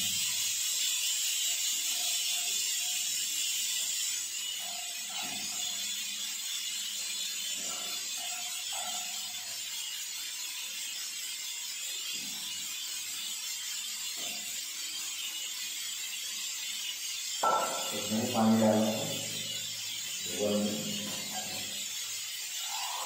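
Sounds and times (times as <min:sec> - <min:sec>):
steady hiss: 0:17.4 - 0:23.0.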